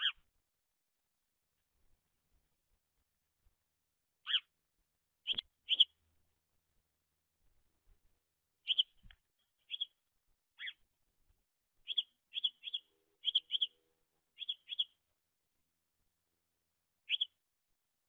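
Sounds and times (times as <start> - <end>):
sparrow chirping: 0.0 - 0.3, 4.2 - 4.6, 5.2 - 6.0, 8.6 - 10.9, 11.8 - 15.1, 17.0 - 17.4.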